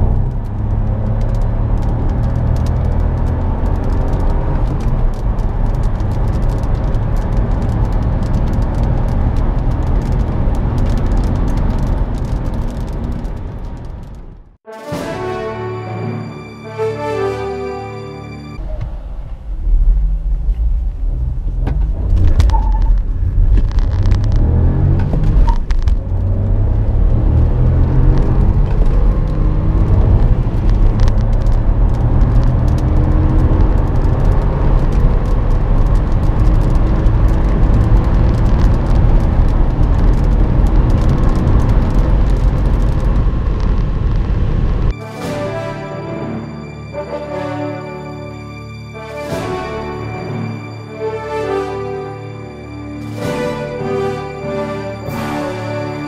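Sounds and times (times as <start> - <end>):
car engine accelerating: 0.0 - 14.6, 18.6 - 48.2.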